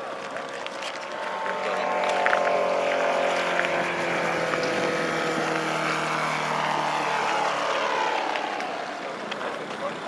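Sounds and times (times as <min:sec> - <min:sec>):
model airplane engine passing: 0:00.0 - 0:10.0.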